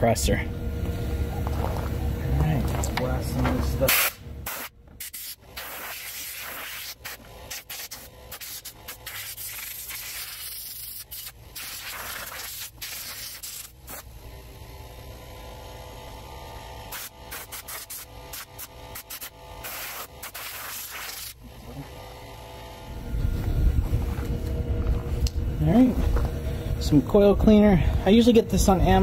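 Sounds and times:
compressed air hissing: 3.9 - 14.1, 16.9 - 21.4.

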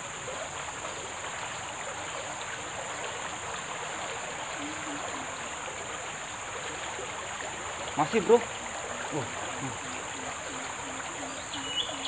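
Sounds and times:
river flowing hiss: 0.0 - 12.0.

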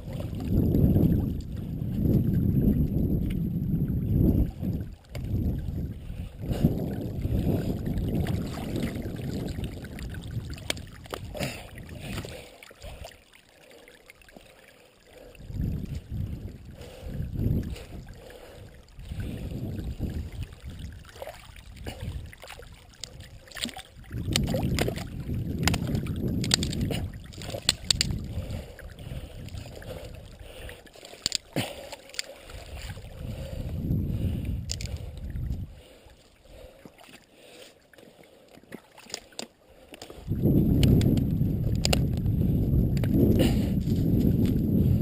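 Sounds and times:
paddle swishing water: 0.0 - 3.4, 4.1 - 45.0
twigs scraping along hull: 22.8 - 28.4.

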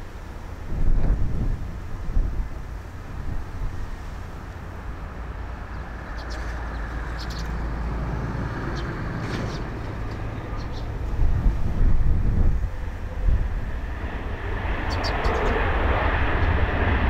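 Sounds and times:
jet engines rumbling: 0.0 - 17.0
bird chirps: 5.7 - 7.6, 10.4 - 11.0, 14.9 - 15.5.

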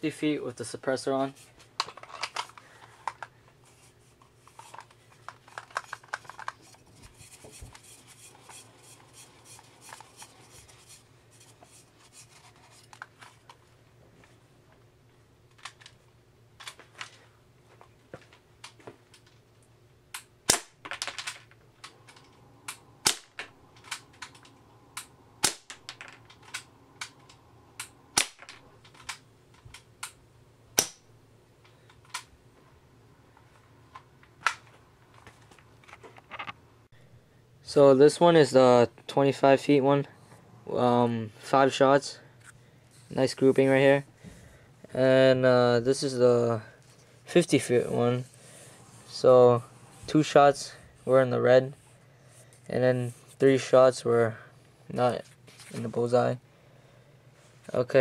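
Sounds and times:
pellets striking paper target: 23.0 - 23.5, 25.4 - 26.0, 28.2 - 28.6.

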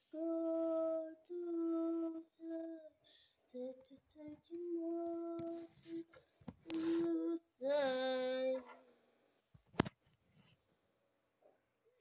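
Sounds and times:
child singing: 0.0 - 8.9.

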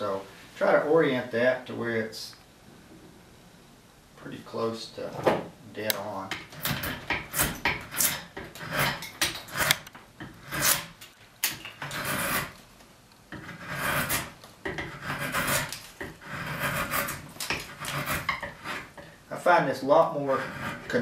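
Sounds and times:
drawknife shaving wood: 6.6 - 12.6, 13.4 - 19.0, 20.2 - 21.0.

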